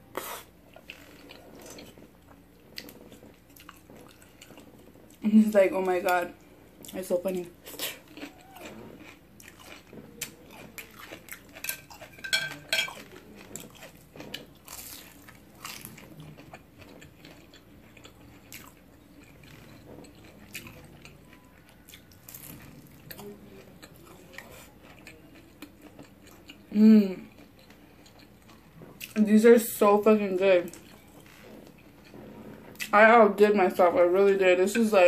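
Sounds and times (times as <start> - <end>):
wet chewing: 0.1 - 5.2, 6.8 - 29.3, 30.6 - 33.0
biting into fried food: 7.7 - 26.7.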